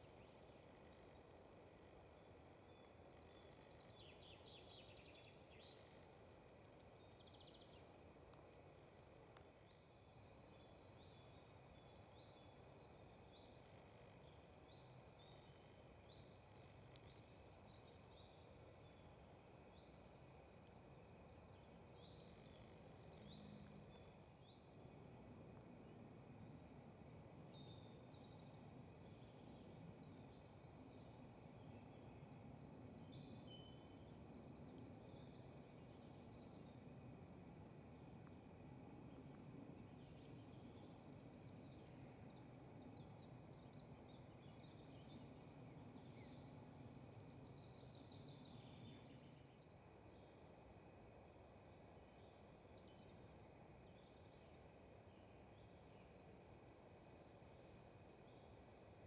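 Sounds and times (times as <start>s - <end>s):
low background hiss: 0.0s - 59.0s.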